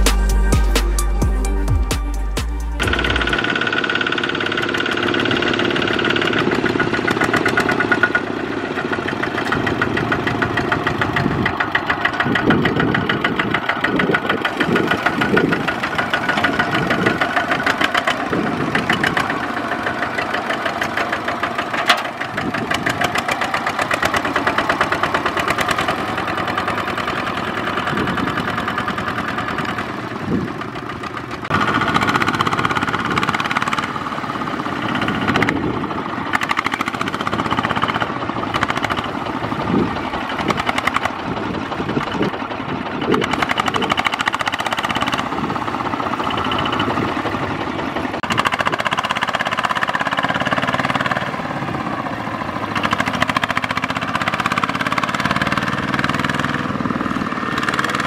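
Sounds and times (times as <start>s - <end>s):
diesel engine knocking: 0.0s - 58.0s.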